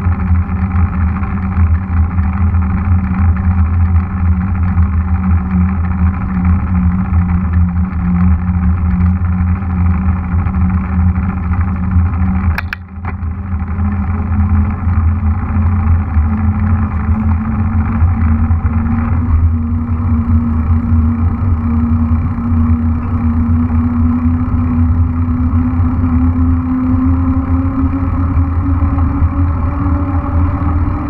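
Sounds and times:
bike tyre hum on asphalt: 0.0s - 31.0s
wind rumble on microphone: 0.0s - 31.0s
sharp clicks: 12.5s - 13.2s.

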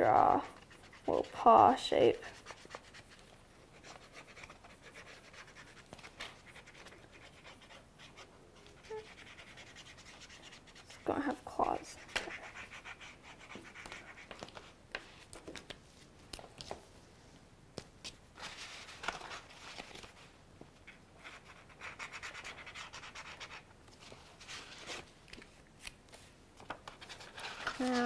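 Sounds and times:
pen scratching on paper: 0.0s - 14.4s, 21.2s - 23.6s.

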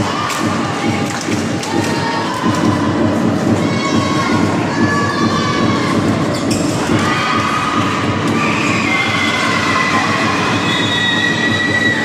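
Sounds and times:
crowd cheering roar: 5.0s - 12.0s.

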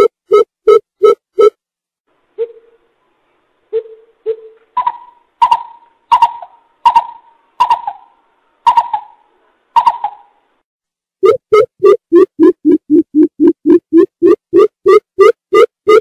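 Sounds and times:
bird deep hooting calls: 3.7s - 10.4s.

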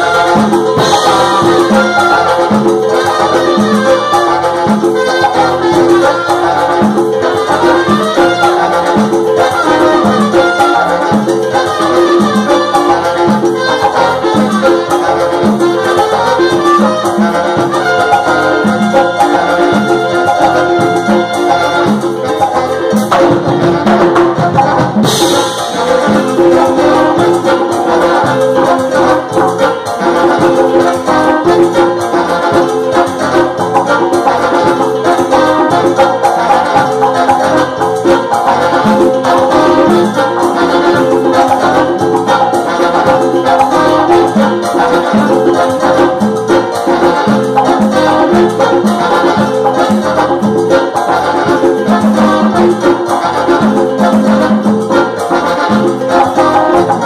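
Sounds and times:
latin dance percussion: 0.0s - 57.0s
saxophone and trumpet: 0.0s - 57.0s.

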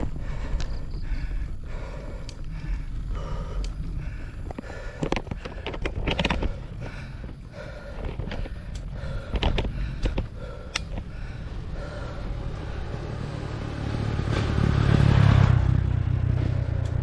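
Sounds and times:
bicycle clicks and rattles: 0.0s - 12.3s
person panting: 0.0s - 13.3s
wind rumbling on microphone: 0.0s - 17.0s.

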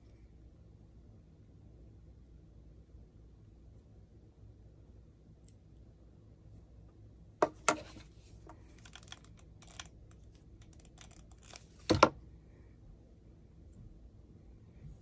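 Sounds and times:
light clicks and rattles: 7.6s - 12.1s.

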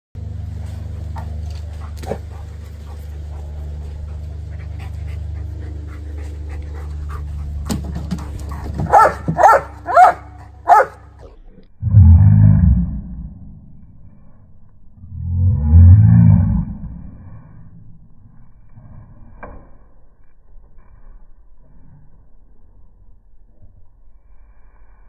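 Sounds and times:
dog barking: 8.9s - 11.1s.

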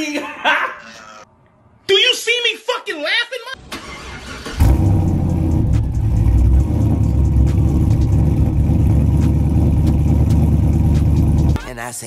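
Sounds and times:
deep engine exhaust rumble: 4.6s - 11.6s.

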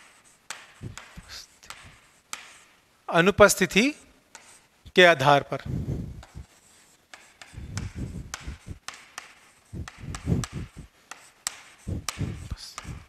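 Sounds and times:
chalk tapping on a chalkboard: 0.0s - 2.8s, 4.3s - 4.7s, 6.2s - 13.0s.

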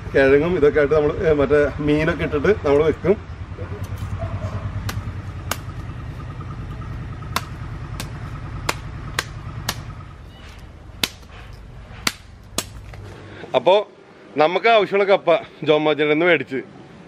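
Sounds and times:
vehicle engine throbbing: 0.0s - 13.4s
sharp knocks: 4.8s - 5.8s, 6.7s - 13.0s.

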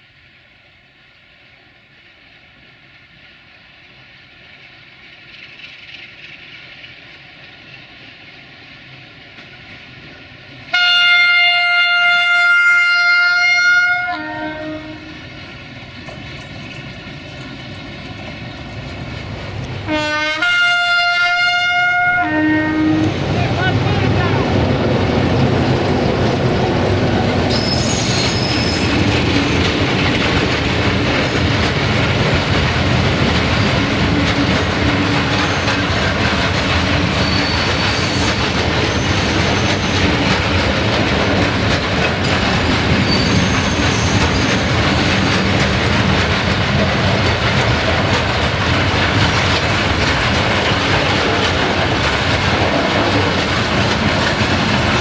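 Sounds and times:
train wheels rumbling on rails: 0.0s - 55.0s
high wheel squeals: 27.5s - 29.0s, 35.3s - 35.9s, 37.1s - 40.1s, 43.0s - 45.0s.

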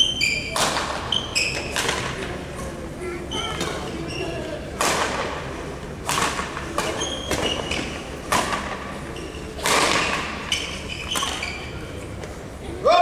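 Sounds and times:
shoes squeaking on court floor: 0.0s - 2.1s, 3.3s - 4.6s, 6.8s - 8.3s, 9.0s - 12.3s.

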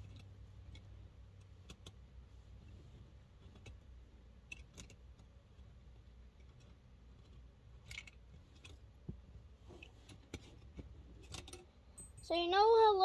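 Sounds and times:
clicks of small toy parts: 0.0s - 2.0s, 4.4s - 5.3s, 6.4s - 8.8s, 11.2s - 11.7s.

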